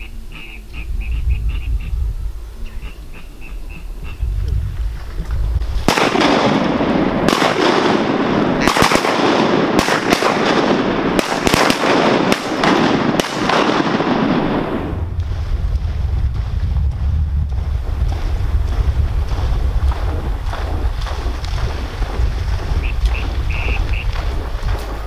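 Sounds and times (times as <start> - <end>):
shotgun blasts: 5.8 - 15.4.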